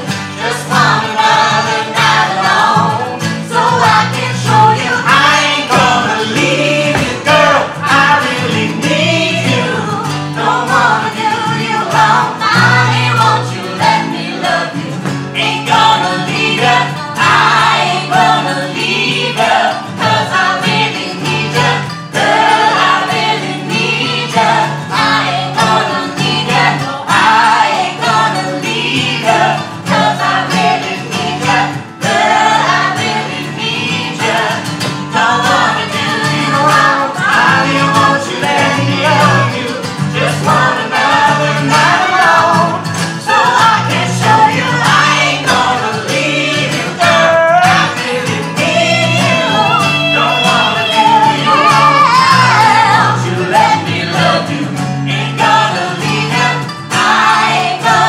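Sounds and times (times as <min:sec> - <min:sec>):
acoustic guitars: 0:00.0 - 0:58.0
group singing in harmony: 0:00.0 - 0:58.0.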